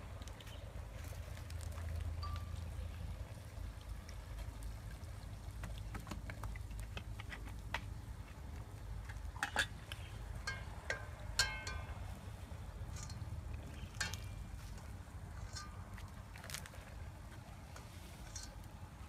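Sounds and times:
steady low rumble: 0:00.0 - 0:19.0
metal ladle clinking on pot: 0:09.4 - 0:12.1, 0:12.9 - 0:14.4.

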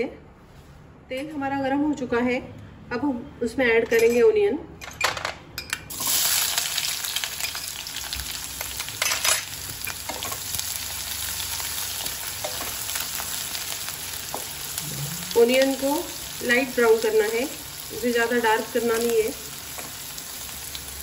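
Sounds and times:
onions sizzling in hot oil: 0:05.9 - 0:21.0.

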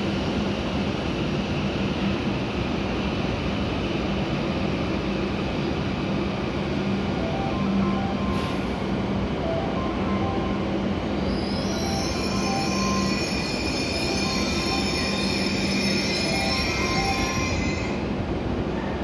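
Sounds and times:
train rolling and braking: 0:00.0 - 0:19.0
high-pitched brake squeal: 0:11.2 - 0:18.1.

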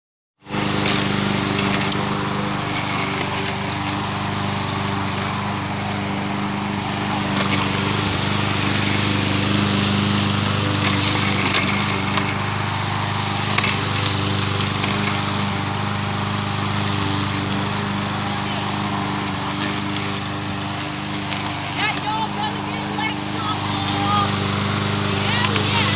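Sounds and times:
lawn mower engine running: 0:00.4 - 0:25.9.

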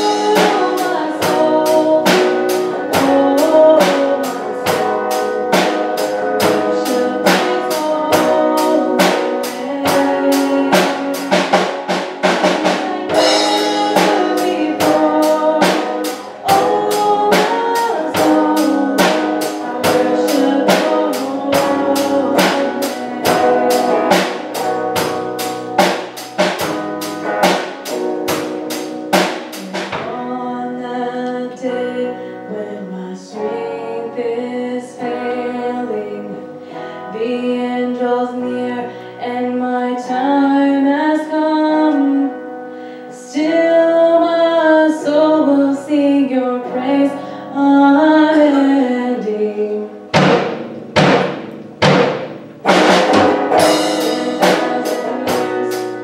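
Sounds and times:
woman singing: 0:00.0 - 0:25.0, 0:29.5 - 0:50.1, 0:53.4 - 0:56.0
drum kit beat: 0:00.0 - 0:30.4, 0:50.0 - 0:56.0
electric guitar: 0:00.0 - 0:56.0.

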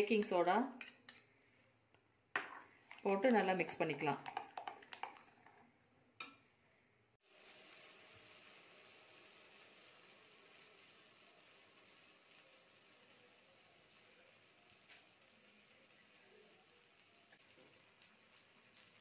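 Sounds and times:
batter sizzling in hot oil: 0:07.2 - 0:19.0.

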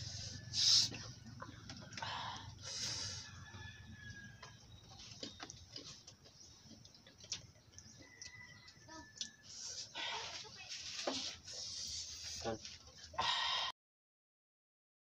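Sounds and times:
breathy sniff: 0:00.0 - 0:01.0, 0:02.0 - 0:03.4.

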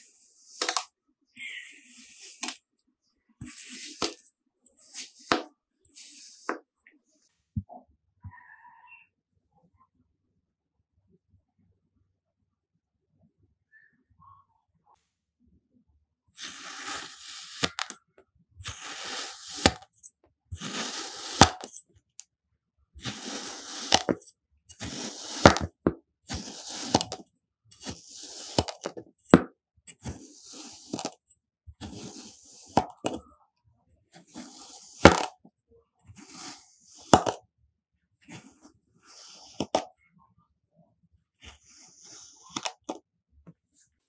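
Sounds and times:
knife cutting gritty sand: 0:03.4 - 0:04.2, 0:04.8 - 0:06.5, 0:16.4 - 0:17.9, 0:18.6 - 0:19.8, 0:20.6 - 0:21.8, 0:23.0 - 0:27.2, 0:27.8 - 0:28.9, 0:29.9 - 0:31.2, 0:31.8 - 0:33.1, 0:34.2 - 0:35.3, 0:36.2 - 0:37.2.

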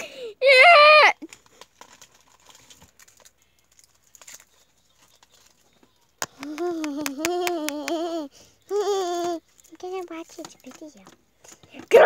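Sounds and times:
child whining: 0:06.4 - 0:09.4.

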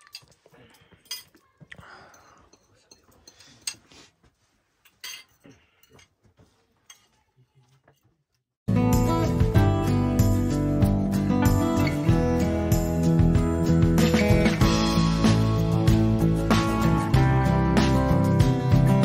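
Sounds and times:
crockery and cutlery clinking: 0:00.0 - 0:03.9, 0:04.8 - 0:06.2, 0:06.8 - 0:08.1
loud music: 0:08.7 - 0:19.0.

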